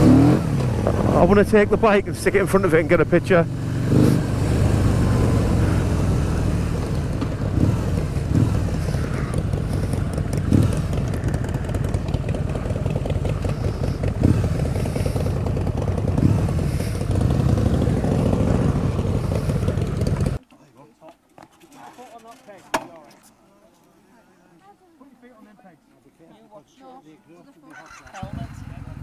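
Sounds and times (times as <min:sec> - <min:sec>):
motorcycle engine running: 0:00.0 - 0:20.4, 0:27.8 - 0:29.0.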